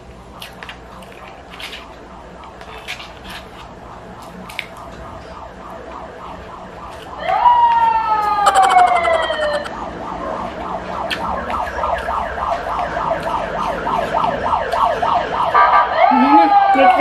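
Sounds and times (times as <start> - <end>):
emergency vehicle siren: 3.6 - 17.0.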